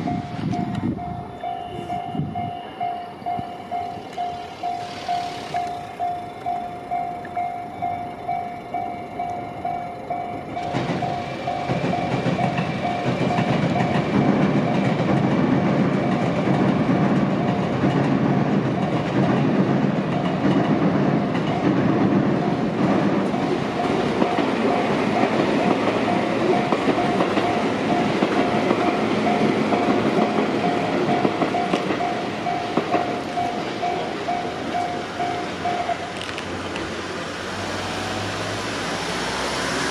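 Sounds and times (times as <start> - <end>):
level-crossing warning bell ringing: 0.0 - 36.4
train rumbling and clattering: 0.0 - 39.9.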